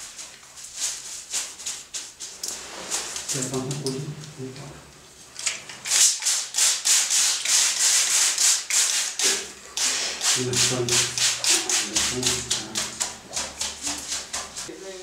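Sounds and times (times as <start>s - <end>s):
rubbing strokes on paper: 6.0s - 14.7s.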